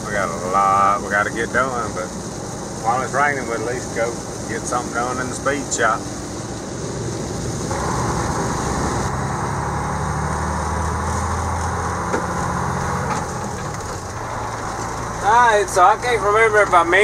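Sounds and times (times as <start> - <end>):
truck engine drone: 0.0 - 17.0
tyre noise on wet road: 0.0 - 17.0.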